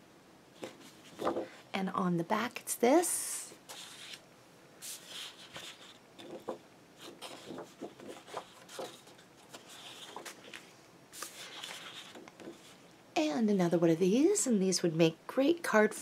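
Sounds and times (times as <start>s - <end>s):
paper sheets rustling: 0.6s - 1.6s, 3.7s - 4.2s, 4.8s - 12.8s.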